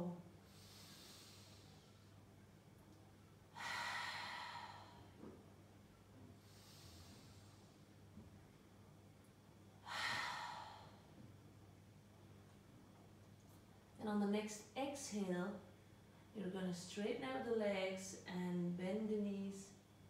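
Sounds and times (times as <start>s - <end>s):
woman breathing in softly: 0.4s - 2.2s, 3.5s - 5.2s, 6.4s - 7.9s, 9.8s - 11.2s
woman exhaling loudly: 9.8s - 11.0s.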